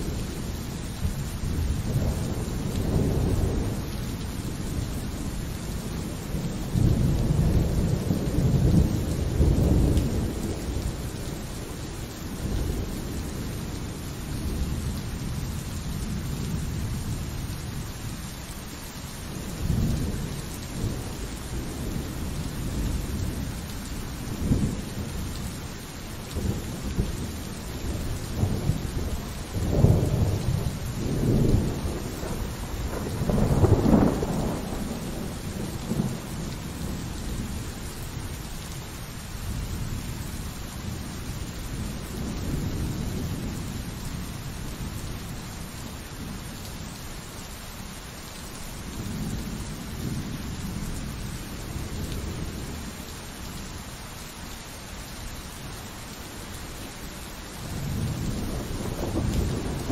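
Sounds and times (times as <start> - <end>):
thunder rumbling: 0.0 - 17.3, 19.3 - 38.3, 57.6 - 59.9
steady rain: 0.0 - 59.9.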